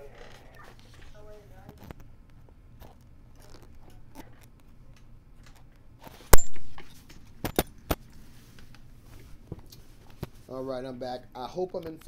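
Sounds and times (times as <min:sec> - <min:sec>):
lapel microphone handling noise: 0:00.0 - 0:04.8.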